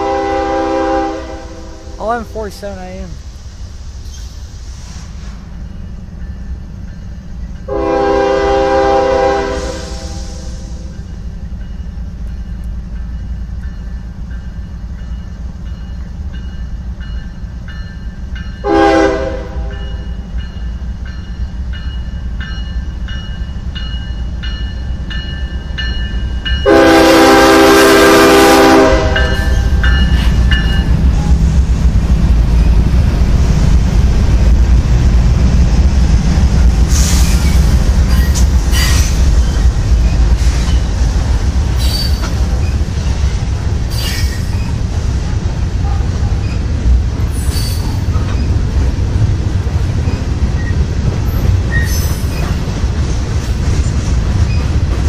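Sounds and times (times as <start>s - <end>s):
train horn blasts: 0.0s - 2.0s, 7.7s - 10.8s, 18.6s - 20.0s, 26.6s - 30.0s
locomotive engines rumbling: 0.0s - 55.0s.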